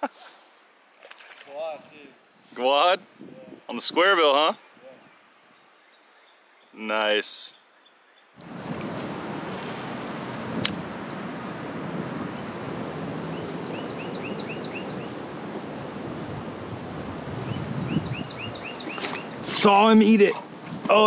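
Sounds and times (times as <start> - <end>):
wind on microphone: 3.0 - 3.7, 8.4 - 19.6, 20.2 - 21.0
bird chirping: 4.5 - 6.9, 7.5 - 8.4, 13.0 - 15.2, 17.4 - 19.6.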